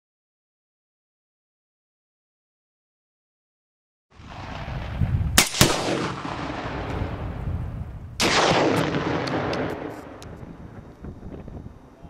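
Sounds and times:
rifle shots: 0:04.3 - 0:07.4, 0:08.2 - 0:10.4
explosive target boom: 0:04.3 - 0:11.4
faint sharp cracks: 0:08.2 - 0:11.1.

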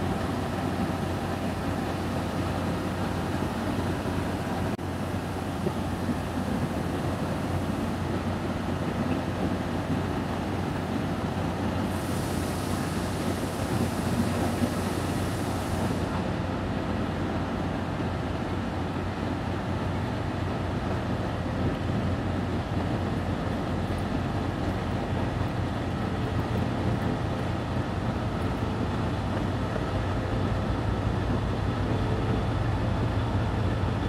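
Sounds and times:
train engine rumble: 0:00.0 - 0:34.0
high hiss: 0:11.8 - 0:16.2.

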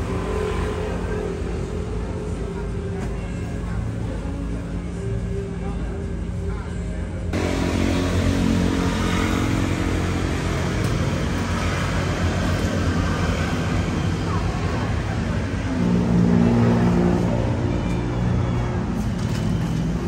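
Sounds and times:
road traffic passing: 0:00.0 - 0:20.0
engine passing close: 0:07.3 - 0:20.0.

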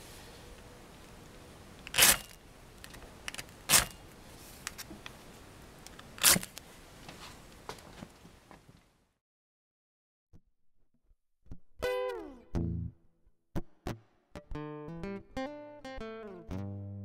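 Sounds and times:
fire steel scraping striker: 0:01.8 - 0:04.0, 0:06.1 - 0:06.6.

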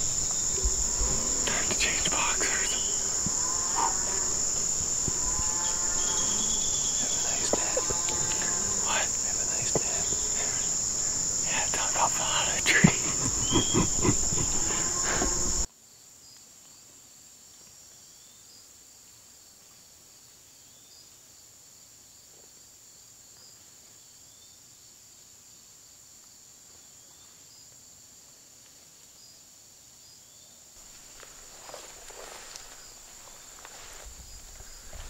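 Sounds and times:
high-pitched insect chorus: 0:00.0 - 0:15.7, 0:30.0 - 0:35.0
faint high insect trill: 0:00.0 - 0:35.0.

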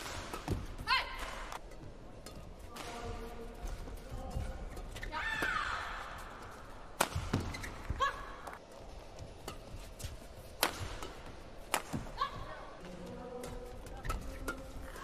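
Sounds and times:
racket hitting shuttlecock: 0:00.0 - 0:03.8, 0:07.0 - 0:08.6, 0:09.4 - 0:12.5
shoes squeaking on court: 0:03.3 - 0:05.4, 0:06.2 - 0:10.4.

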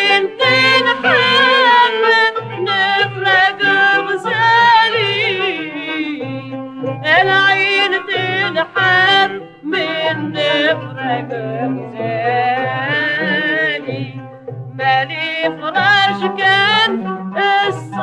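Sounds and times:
low musical accompaniment: 0:00.0 - 0:18.0
woman singing with vibrato: 0:00.0 - 0:18.0.

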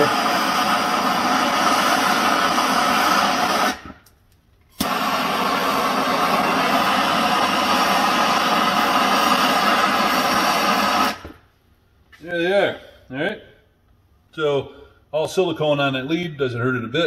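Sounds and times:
torch flame hissing: 0:00.0 - 0:11.6.

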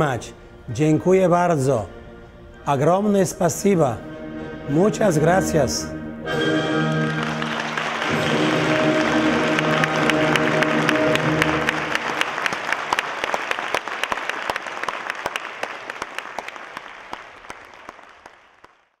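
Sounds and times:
orchestral chord: 0:00.7 - 0:12.8
audience applause: 0:06.8 - 0:19.0.

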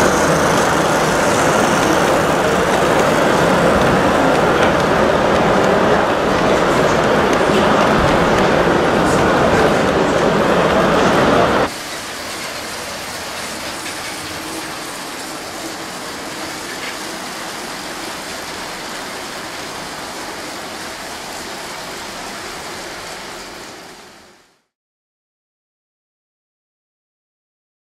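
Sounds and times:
toy train wheels and motor hiss: 0:00.0 - 0:08.4, 0:11.7 - 0:24.5
large model train running: 0:00.0 - 0:24.7.

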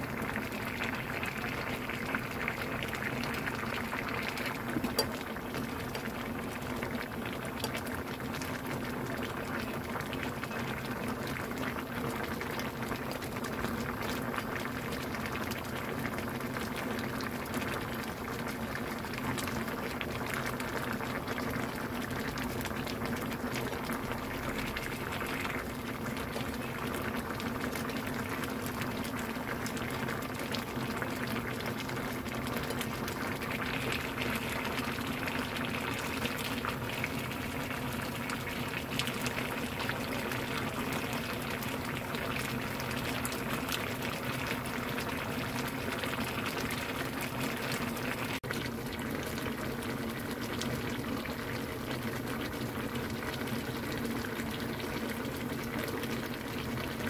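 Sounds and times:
sauce bubbling in a pan: 0:00.0 - 0:57.0.

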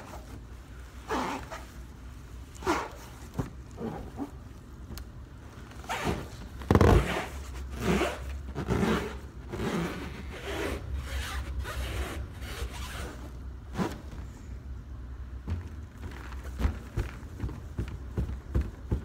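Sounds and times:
gloved hands rubbing a balloon: 0:00.0 - 0:02.0, 0:05.9 - 0:14.1.

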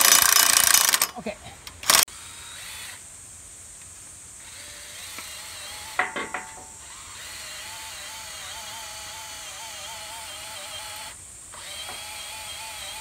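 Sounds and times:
cordless drill boring into timber: 0:00.0 - 0:01.1, 0:01.8 - 0:03.0, 0:04.4 - 0:06.2, 0:06.8 - 0:13.0
rattle of sharp clicks: 0:00.0 - 0:02.0.

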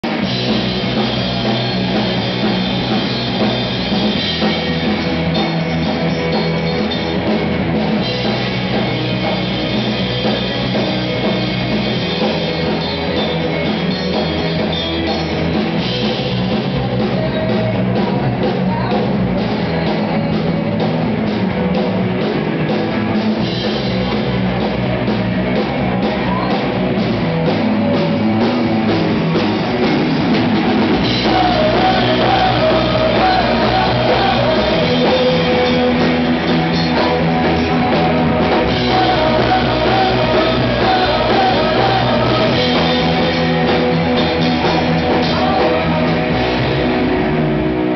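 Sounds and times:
drum kit with cymbals: 0:00.0 - 0:47.9
electric guitar: 0:00.0 - 0:47.9
live rock band playing: 0:00.0 - 0:47.9
woman singing: 0:16.6 - 0:21.2, 0:31.1 - 0:36.1, 0:36.9 - 0:43.7.

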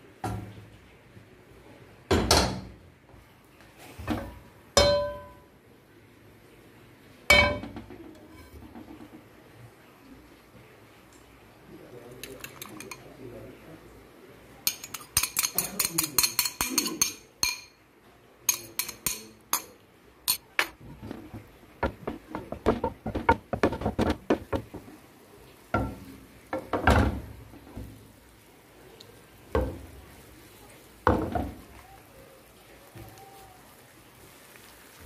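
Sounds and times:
fork clinking against glass bowl: 0:12.2 - 0:13.0, 0:14.7 - 0:17.8, 0:18.5 - 0:20.5
utensil scraping egg in pan: 0:14.7 - 0:17.6, 0:18.5 - 0:19.7
utensil knocks: 0:20.6 - 0:25.0.

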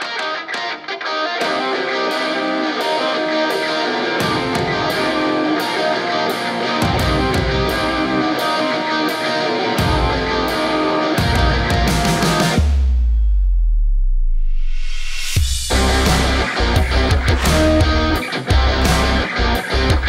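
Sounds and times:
guitar music: 0:00.0 - 0:12.7, 0:15.6 - 0:20.0
heavy bass: 0:11.2 - 0:20.0
cymbal beat: 0:14.8 - 0:20.0.

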